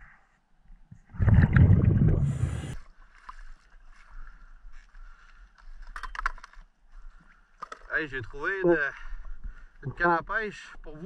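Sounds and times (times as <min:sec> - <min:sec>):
air bubbling underwater: 0:01.0 - 0:02.8.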